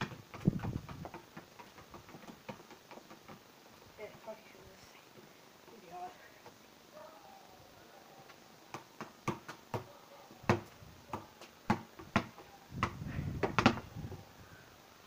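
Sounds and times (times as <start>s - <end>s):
ball kicked on stone patio: 0.0s - 4.3s, 8.7s - 14.1s.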